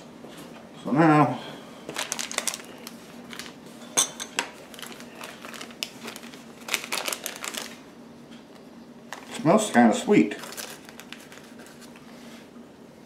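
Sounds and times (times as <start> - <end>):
plastic packet crinkling: 1.9 - 3.6, 4.4 - 7.9, 9.1 - 12.0.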